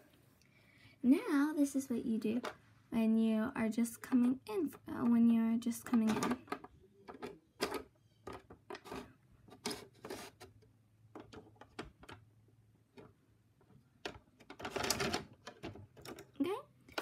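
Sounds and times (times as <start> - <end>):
plastic toy doors clicking: 14.0 - 17.0.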